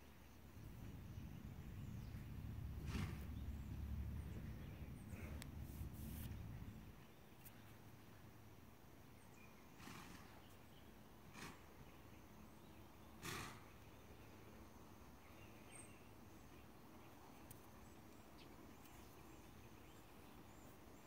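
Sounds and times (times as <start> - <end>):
faint outdoor ambience: 0.0 - 21.0
soft puffs of noise: 4.8 - 6.8.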